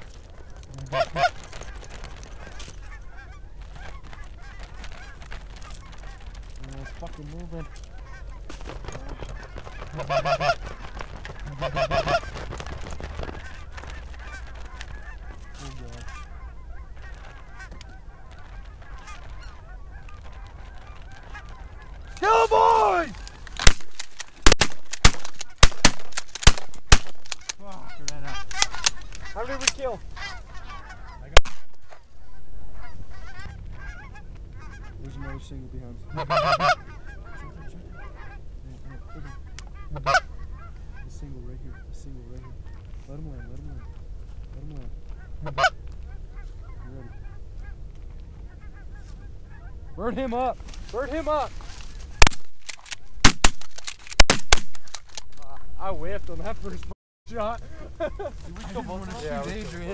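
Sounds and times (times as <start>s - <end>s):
geese honking: 0.0s - 53.9s, 54.8s - 59.9s
shotgun blasts: 23.6s - 27.5s, 31.4s - 31.9s, 52.2s - 55.0s.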